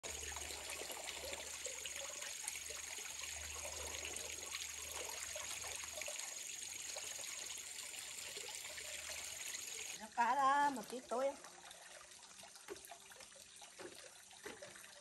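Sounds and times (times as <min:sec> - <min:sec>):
ducks splashing and dabbling: 0:00.0 - 0:15.0
water trickling: 0:00.0 - 0:15.0.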